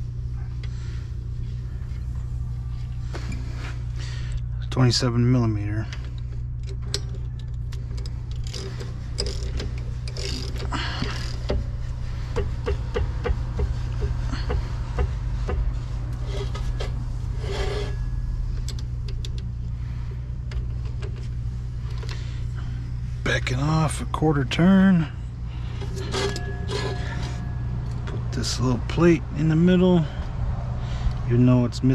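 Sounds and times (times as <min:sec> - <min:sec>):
steady low hum: 0:00.0 - 0:31.9.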